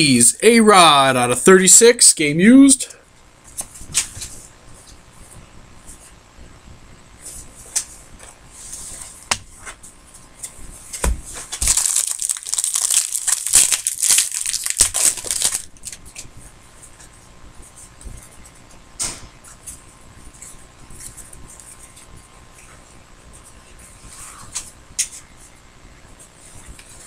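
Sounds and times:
wrapper crinkling and tearing: 11.6s - 16.0s.

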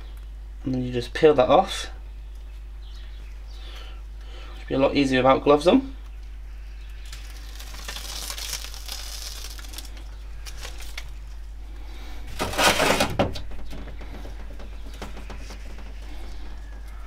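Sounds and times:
backing tape crinkling as peeled: 6.8s - 11.5s.

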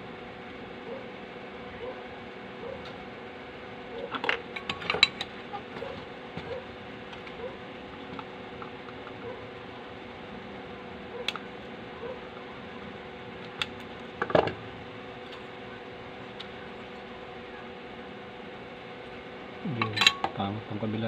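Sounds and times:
steady background hum: 0.0s - 21.0s.

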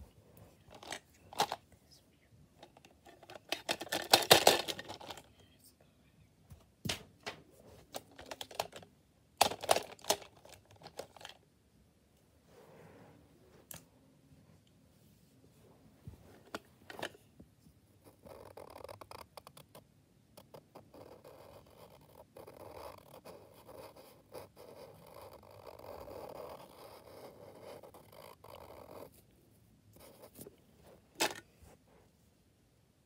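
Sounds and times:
marker scratching on paper: 20.4s - 29.2s.

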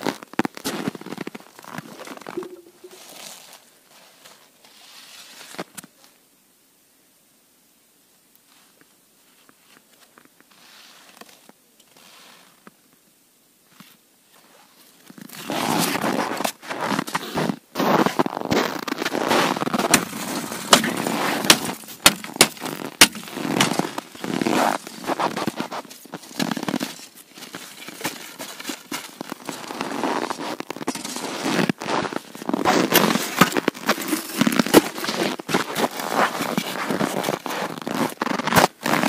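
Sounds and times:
crunching and scraping of ice: 0.0s - 5.7s, 14.6s - 39.0s
ice chisel striking ice: 19.8s - 23.9s.

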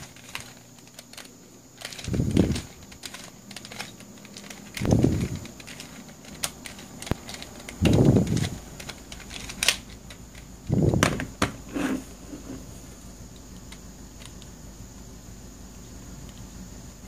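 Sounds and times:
sharp plastic clicks: 0.0s - 11.5s.

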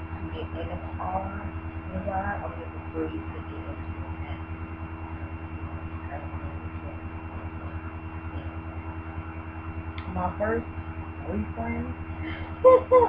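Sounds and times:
pulsing low hum: 0.0s - 13.0s.

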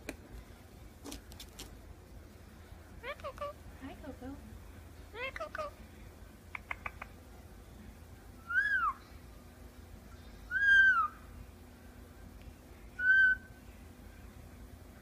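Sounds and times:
parakeet whistling: 8.5s - 9.0s, 10.5s - 11.2s, 13.0s - 13.5s.

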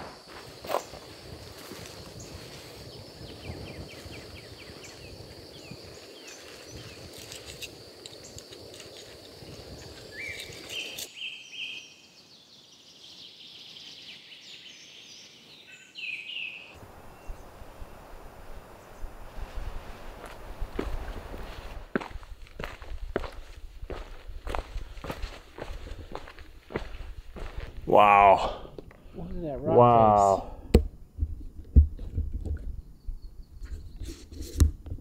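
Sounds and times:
birds chirping and calling: 9.7s - 11.9s.

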